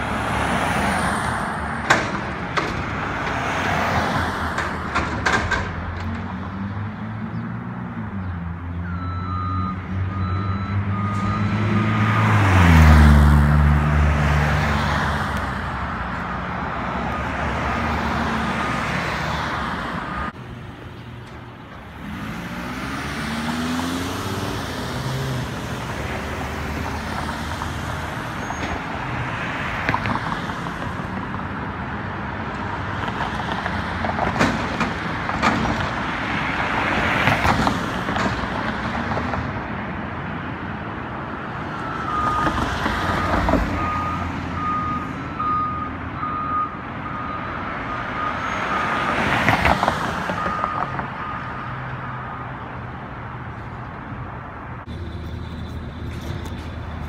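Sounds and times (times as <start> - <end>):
backup alarm beeping: 8.9 - 11.6
diesel engine revving and idling: 21.8 - 27.5.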